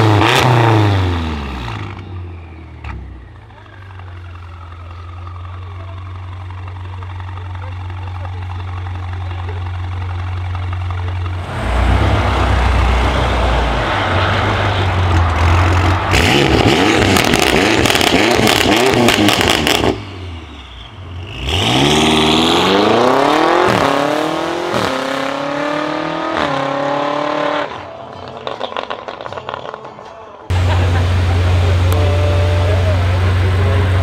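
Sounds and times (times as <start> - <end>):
car engine revving: 0.0 - 34.0
exhaust crackles and pops: 3.7 - 11.4, 15.1 - 20.0.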